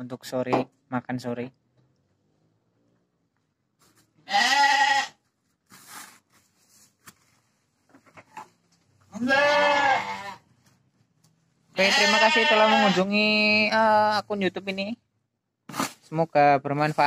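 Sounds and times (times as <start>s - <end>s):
livestock bleating: 4.2s - 5.2s, 9.1s - 10.5s, 11.7s - 13.2s.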